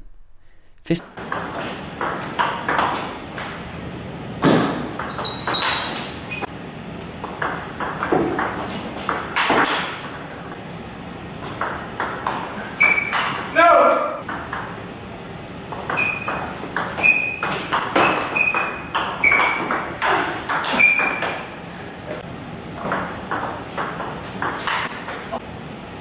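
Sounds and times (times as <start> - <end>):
ball bouncing on table: 22.8 - 25.3
table tennis ball clicking off paddles: 22.8 - 25.4.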